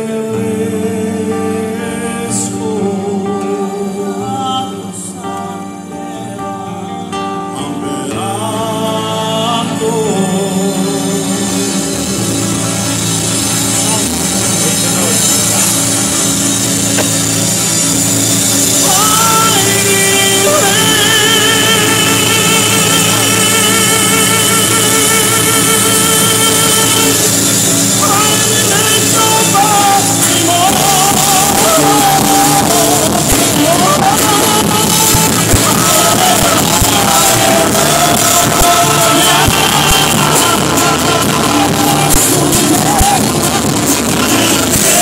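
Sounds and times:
acoustic guitar: 0.0 - 45.0
keyboard: 0.0 - 45.0
man singing: 0.0 - 45.0.

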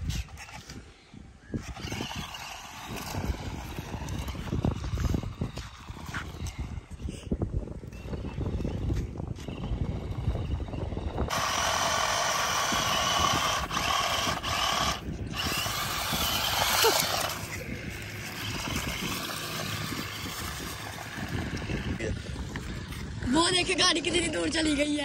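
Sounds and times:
toy car electric motor whining: 0.1 - 25.0.

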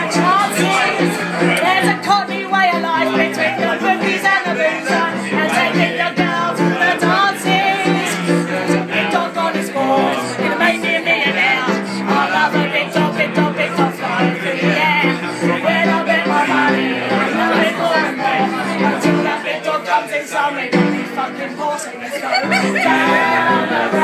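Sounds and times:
rhythmic piano: 0.0 - 24.0
woman singing: 1.6 - 14.0.

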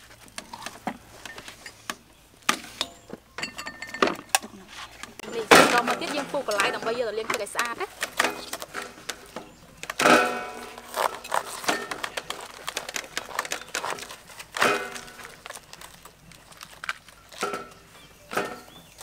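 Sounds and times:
cabbage leaves cracking: 5.3 - 19.0
knives cutting cabbage: 10.3 - 16.0.

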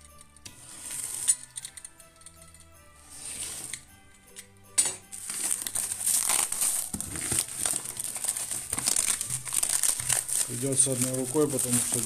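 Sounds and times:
plastic wrapping crinkling: 4.9 - 12.0.

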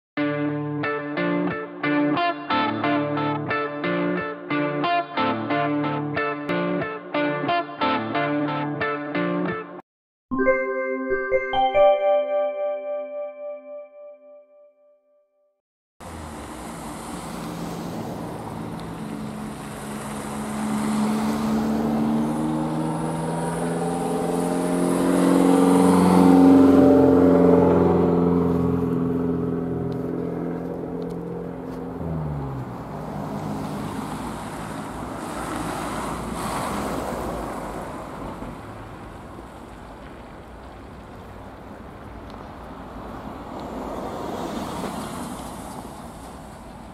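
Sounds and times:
diesel locomotive engine drone: 16.0 - 35.6.

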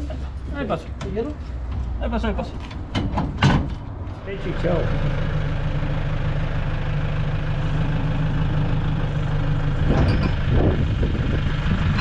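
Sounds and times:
car engine idling: 0.0 - 12.0
metal clanks of tow bar: 2.6 - 3.9.

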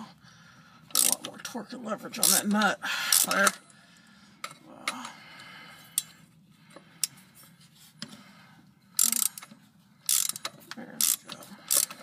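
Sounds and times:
socket ratchet clicking: 0.9 - 1.3, 9.0 - 9.5, 10.1 - 12.0.

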